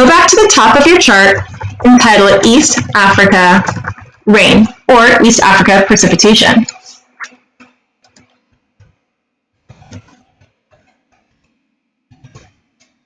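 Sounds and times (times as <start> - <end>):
computer keyboard typing: 0.0 - 5.5.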